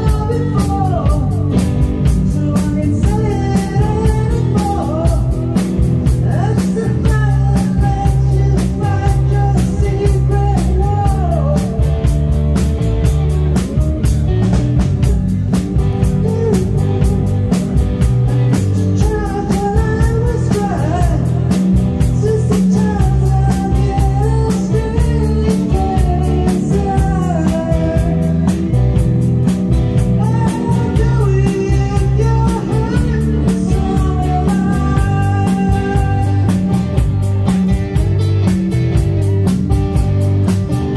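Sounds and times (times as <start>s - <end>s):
woman singing: 0.0s - 5.5s, 6.2s - 11.8s, 16.0s - 17.7s, 18.5s - 28.4s, 30.2s - 36.8s
bass guitar: 0.0s - 40.9s
drum kit beat: 0.0s - 40.9s
electric guitar: 0.0s - 40.9s
keyboards: 0.0s - 40.9s.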